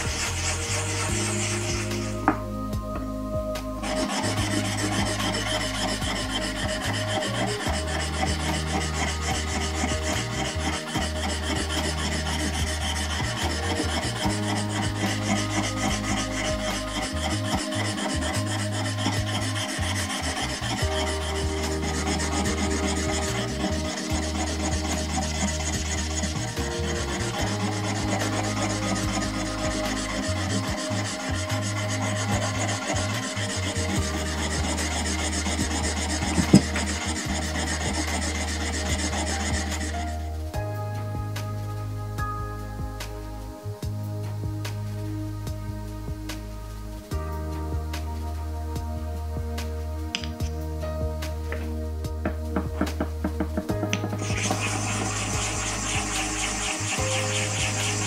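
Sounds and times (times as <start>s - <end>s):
chisel grinding on whetstone: 0.0s - 2.4s, 3.8s - 40.3s, 52.3s - 58.0s.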